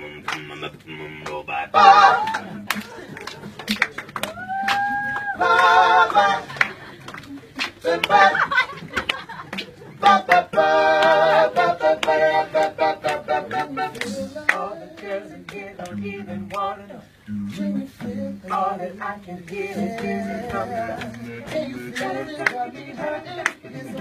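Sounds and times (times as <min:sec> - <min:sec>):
group singing a cappella: 0:00.0 - 0:03.1, 0:05.3 - 0:06.9, 0:07.6 - 0:08.9, 0:09.7 - 0:24.0.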